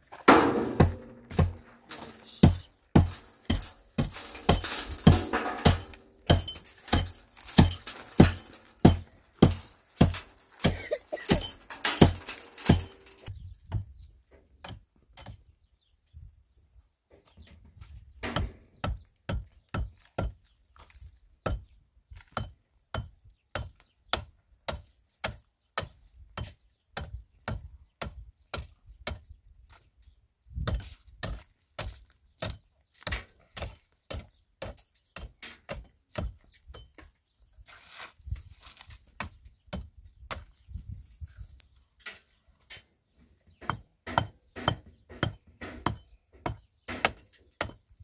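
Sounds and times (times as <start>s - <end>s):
sharp knocks: 0.3s - 13.3s.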